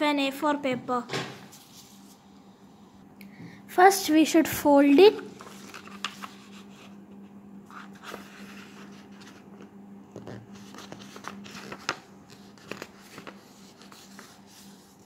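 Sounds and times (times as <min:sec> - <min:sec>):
faint steady hum: 0:00.0 - 0:15.0
paper rustling and crinkling: 0:04.9 - 0:07.0, 0:07.7 - 0:15.0.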